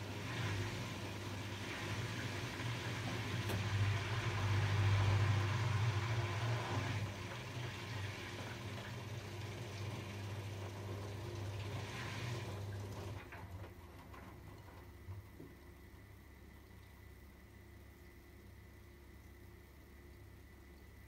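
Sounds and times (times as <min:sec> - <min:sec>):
laundry tumbling and water sloshing: 0:00.0 - 0:15.6
washing machine motor humming: 0:00.0 - 0:21.0.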